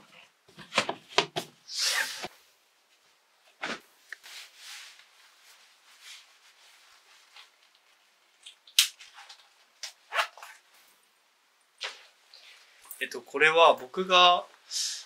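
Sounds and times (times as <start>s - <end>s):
clothing rustling: 2.9s - 8.4s.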